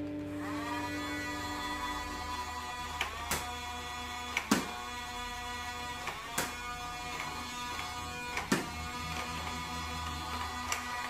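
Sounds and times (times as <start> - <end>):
toy dart gun pops: 3.0 - 3.6, 4.3 - 4.8, 6.0 - 9.4.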